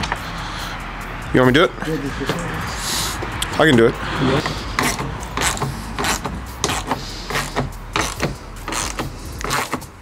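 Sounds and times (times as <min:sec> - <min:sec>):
ratchet wrench clicking: 0:04.4 - 0:10.0.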